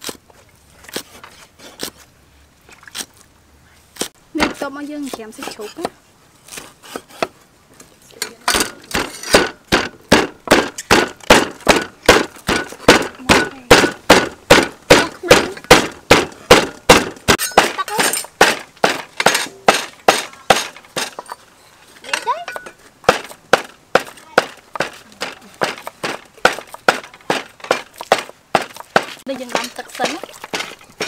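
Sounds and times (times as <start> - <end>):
cleaver chopping meat on wood block: 8.9 - 17.8, 23.1 - 30.7.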